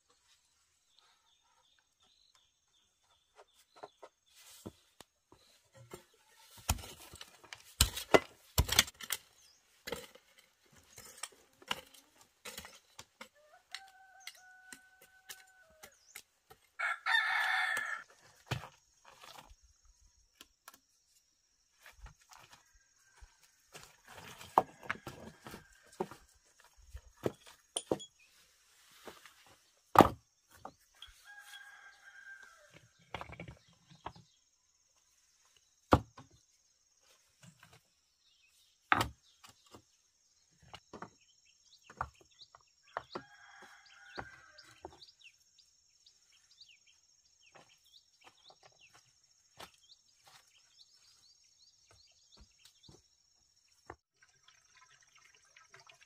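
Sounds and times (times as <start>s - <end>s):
rooster crowing: 13.4s - 15.8s, 16.8s - 18.0s.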